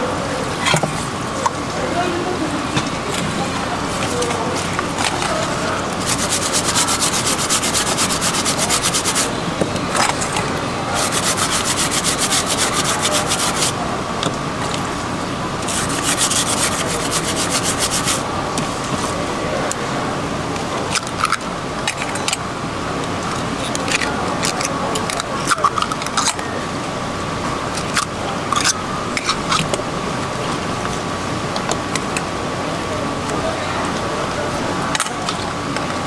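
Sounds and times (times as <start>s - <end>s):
rapid scraping strokes: 3.9s - 9.3s, 10.9s - 13.8s, 15.6s - 18.3s.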